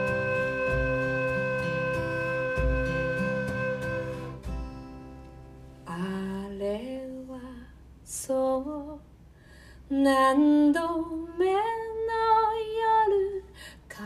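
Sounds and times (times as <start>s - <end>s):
woman singing slow melody: 5.9s - 9.1s, 9.9s - 14.0s
woman breathing: 9.3s - 9.9s, 13.5s - 13.9s.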